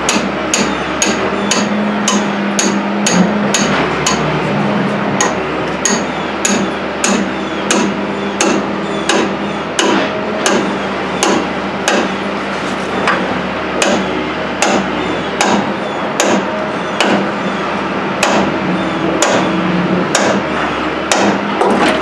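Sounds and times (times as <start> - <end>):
hammer striking metal: 0.0 - 4.4, 5.2 - 12.2, 13.8 - 17.3, 18.2 - 18.6, 19.2 - 20.5, 21.1 - 21.8.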